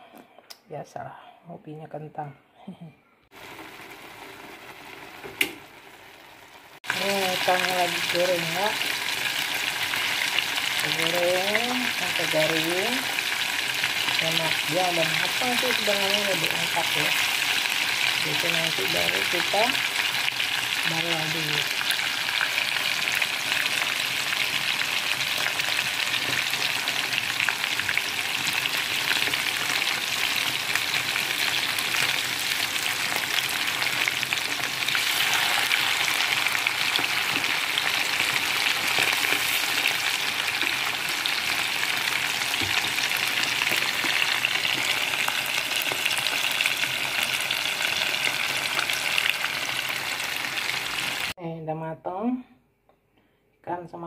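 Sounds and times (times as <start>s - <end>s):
fish sizzling in hot oil: 3.4s - 51.4s
spatula turning fish: 33.7s - 47.4s.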